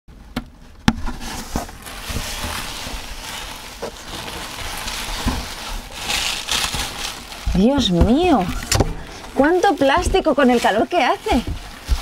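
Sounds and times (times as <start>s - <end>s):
plastic packaging crinkling: 1.1s - 12.0s.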